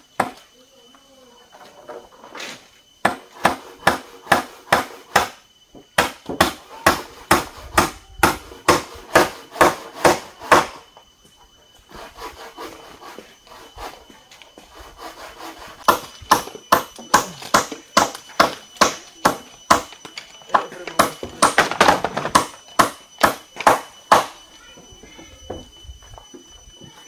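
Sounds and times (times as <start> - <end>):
hammer blows on wood: 3.0 - 10.8.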